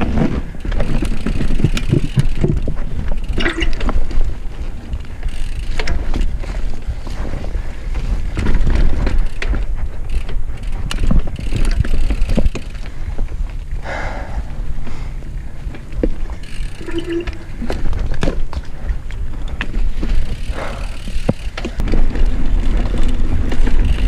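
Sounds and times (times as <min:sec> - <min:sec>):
tyres rumbling on dirt: 0:00.0 - 0:13.6, 0:19.2 - 0:24.0
bike clicks and rattles: 0:00.0 - 0:24.0.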